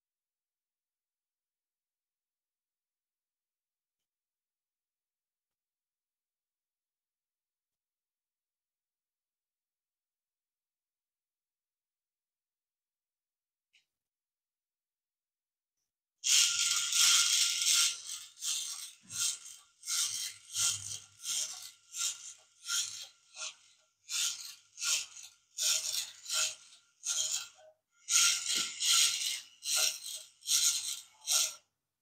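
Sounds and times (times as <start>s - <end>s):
toy robot legs clattering: 16.2s - 31.6s.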